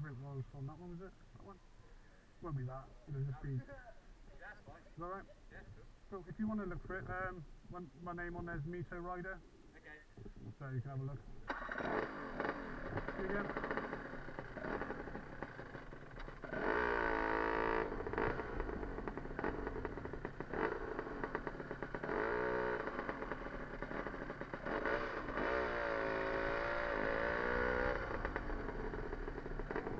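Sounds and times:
motorcycle engine revving: 11.3 - 29.9.

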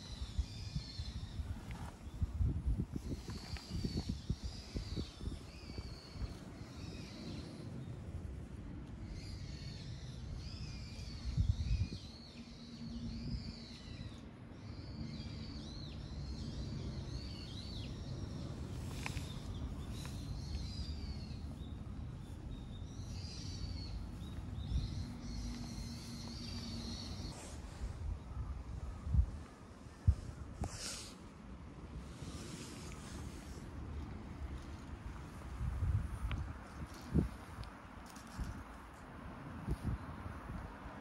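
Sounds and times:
small birds chirping: 0.0 - 31.4.

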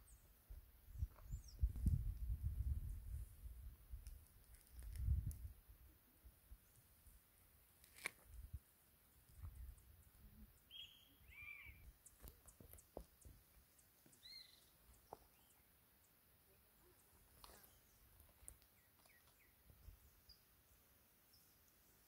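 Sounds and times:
faint bird chirps: 9.1 - 22.0.

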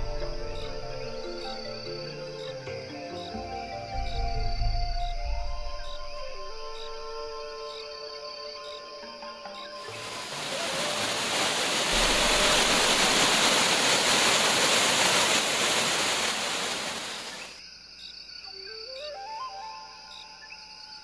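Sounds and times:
waterfall roaring: 9.9 - 17.6.

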